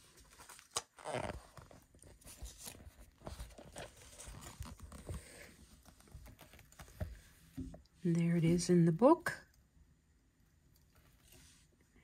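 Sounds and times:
book pages rustling: 0.0s - 7.8s.

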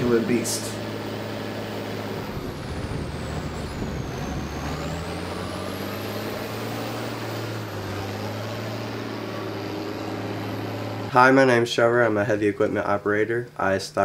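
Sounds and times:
diesel engine droning: 0.0s - 12.2s.

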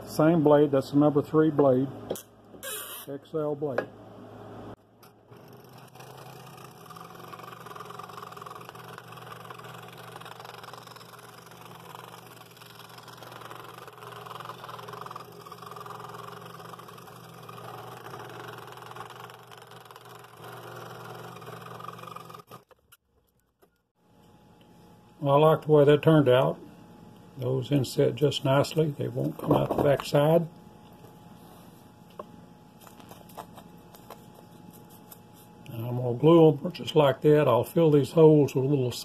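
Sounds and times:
scroll saw motor hum: 5.0s - 22.8s
saw rasping through wood: 5.3s - 22.6s.

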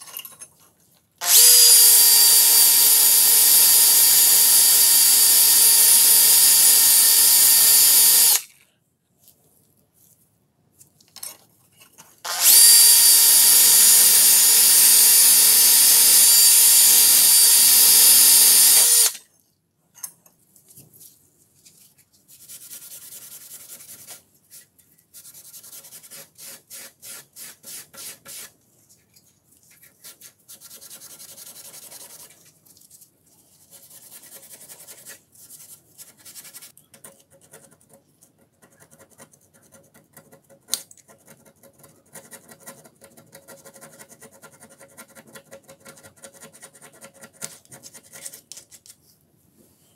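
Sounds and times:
rotary tool high whine: 1.2s - 8.4s, 12.3s - 19.2s.

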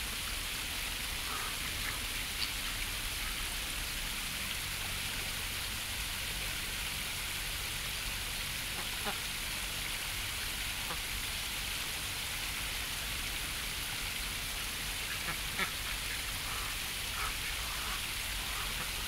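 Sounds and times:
shallow stream running: 0.0s - 19.0s
ducks quacking: 15.1s - 18.9s.

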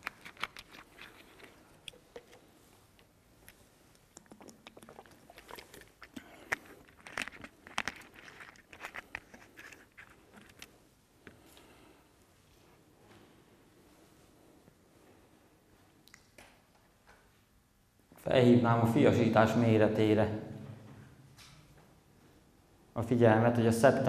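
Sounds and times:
faint clicks and scrapes of handling: 0.0s - 4.1s, 5.3s - 11.7s.

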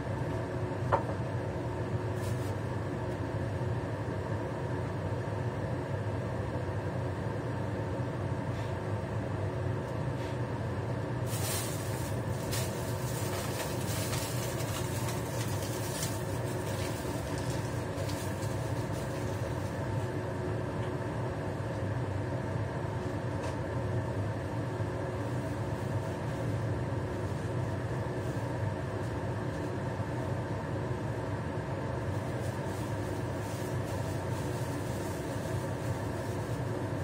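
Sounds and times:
range hood fan humming: 0.0s - 37.0s
faint crackles from heating pan: 11.3s - 20.2s.

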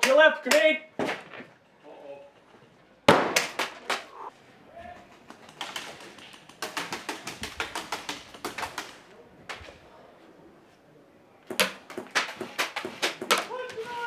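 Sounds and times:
pellets striking wooden walls: 0.0s - 1.6s, 3.1s - 4.0s, 5.4s - 9.7s, 11.4s - 14.0s
airsoft guns shooting: 3.1s - 4.1s, 5.4s - 9.1s, 11.4s - 13.8s.

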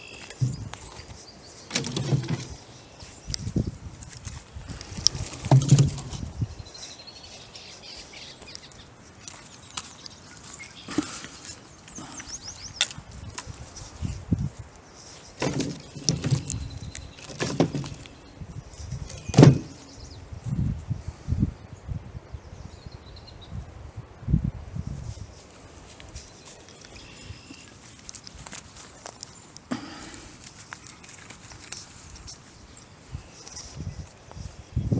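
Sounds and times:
birds chirping faintly: 0.0s - 20.6s, 25.2s - 34.9s
branch clattering into wooden box: 1.7s - 2.6s, 4.1s - 6.3s, 15.4s - 18.2s, 19.0s - 19.8s
footsteps through leaves and twigs: 2.3s - 20.6s, 24.8s - 34.9s.

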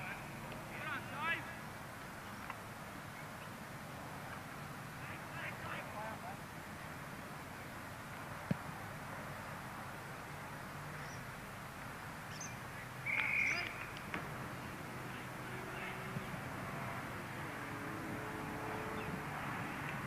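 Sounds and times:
faint distant calls: 12.3s - 19.9s.

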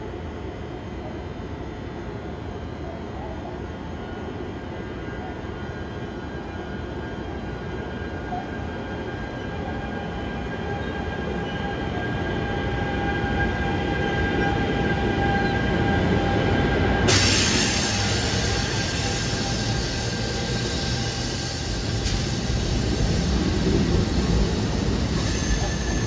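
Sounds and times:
train passing rumble: 8.6s - 26.0s.

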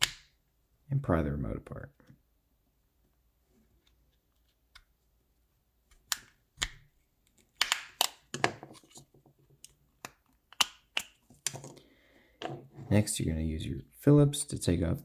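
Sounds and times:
plastic clips snapping: 5.9s - 8.3s.

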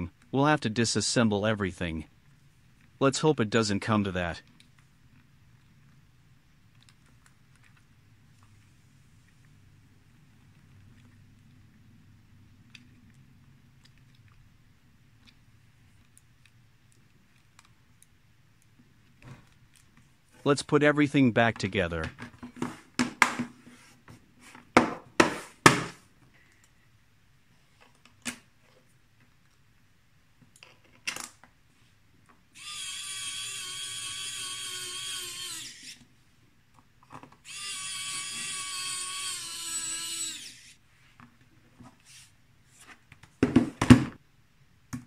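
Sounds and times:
electric screwdriver whining: 32.6s - 36.1s, 37.4s - 40.8s.

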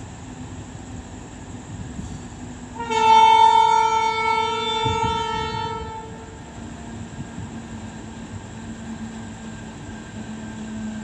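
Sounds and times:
low rumble of train: 0.0s - 11.0s
train horn blast: 2.8s - 6.4s.

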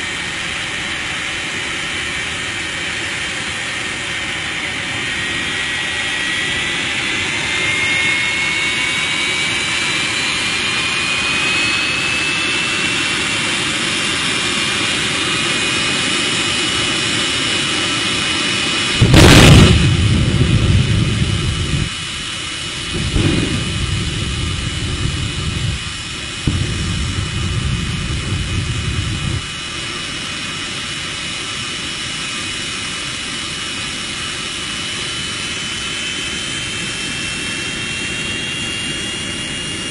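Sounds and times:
jet turbine whining: 0.0s - 39.9s
afterburner blast: 18.8s - 30.6s.

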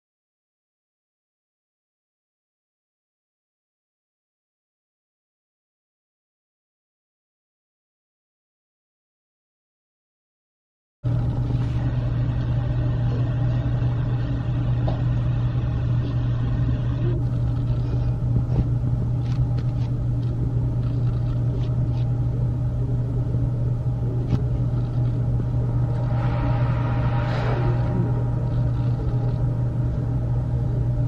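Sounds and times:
low rumbling hum: 11.0s - 31.0s.

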